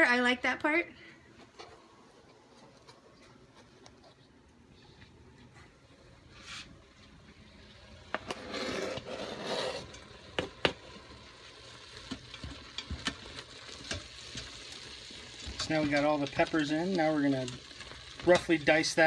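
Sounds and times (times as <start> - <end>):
light sizzle: 0.0 - 19.0
knife scraping cutting board: 8.3 - 9.9
spatula stirring in pot: 11.9 - 16.7.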